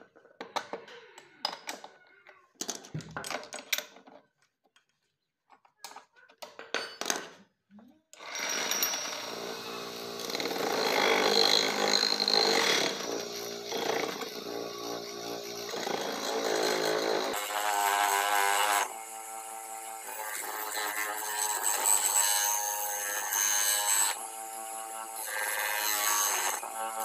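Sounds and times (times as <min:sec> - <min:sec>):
bench grinder motor hum: 0:08.2 - 0:27.0.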